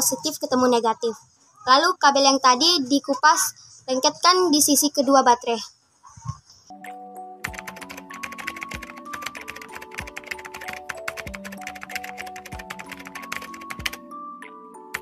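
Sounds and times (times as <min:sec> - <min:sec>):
light background music: 0:00.0 - 0:15.0
rapid keyboard typing: 0:07.4 - 0:14.1.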